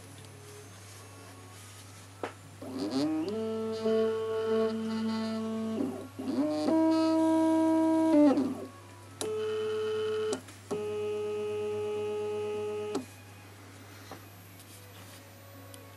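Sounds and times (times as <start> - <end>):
motor clicks: 2.6 - 8.6
stepper motor whining: 2.6 - 8.7.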